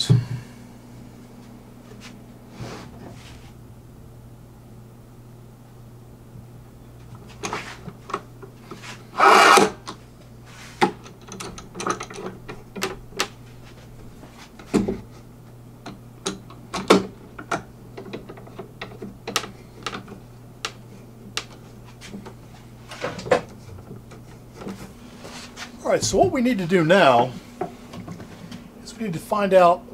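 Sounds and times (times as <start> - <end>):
steady low hum: 0.0 - 29.9
scraping rub on wood: 8.8 - 9.8
knocks and clicks of wood and clamps: 15.8 - 22.3.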